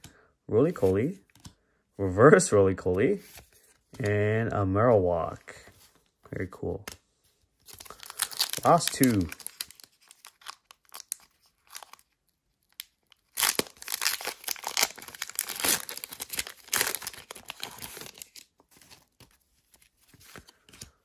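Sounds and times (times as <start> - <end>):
foil wrapper tearing and crinkling: 7.7 - 18.5.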